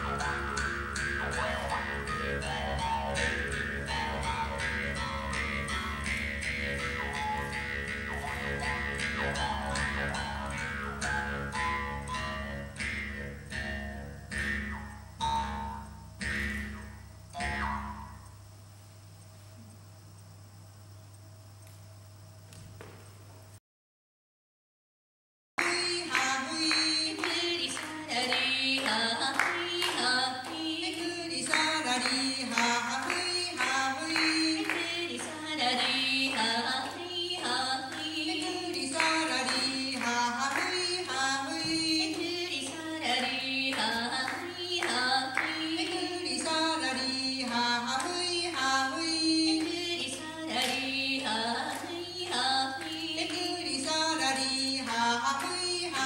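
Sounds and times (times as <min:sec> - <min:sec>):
hand claps: 0:25.6 - 0:56.0
women singing: 0:25.6 - 0:56.0.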